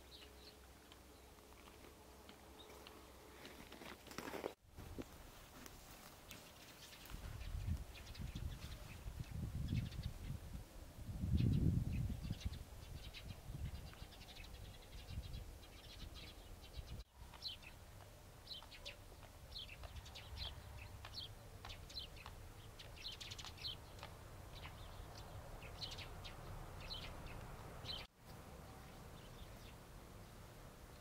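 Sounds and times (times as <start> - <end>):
small birds chirping: 6.2 - 10.5, 11.3 - 31.0.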